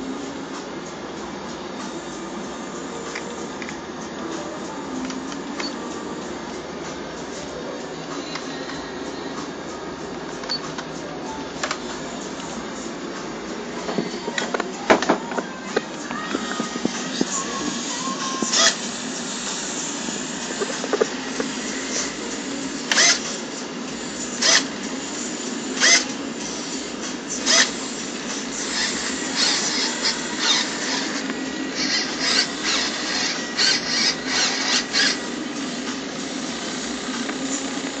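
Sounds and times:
steady background hum: 0.0s - 38.0s
small servos whirring: 15.4s - 23.4s, 24.1s - 38.0s.

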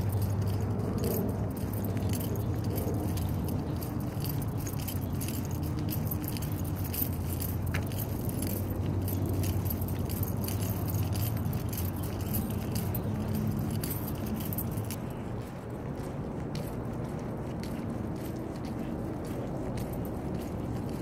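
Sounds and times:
keys jingling: 0.0s - 15.3s.

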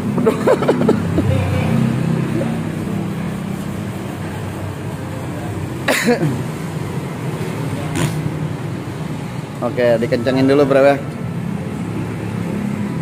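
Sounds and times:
low mechanical hum: 0.0s - 9.8s.

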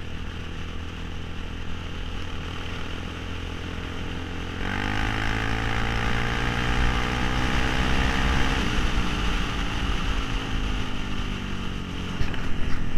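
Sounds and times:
quad bike engine revving: 2.1s - 11.2s.

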